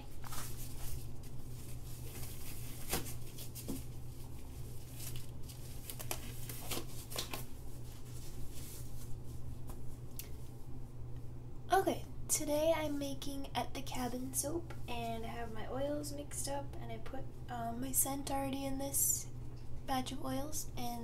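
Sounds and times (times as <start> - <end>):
steady low hum: 0.0 - 21.0
rubber gloves rustling and snapping: 0.1 - 10.4.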